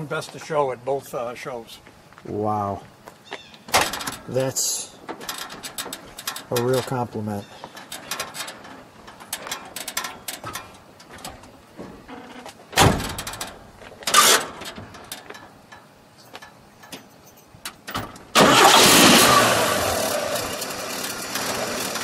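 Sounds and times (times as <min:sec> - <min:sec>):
loud thumps: 0:12.7 - 0:15.1
car engine starting and running: 0:17.8 - 0:22.0.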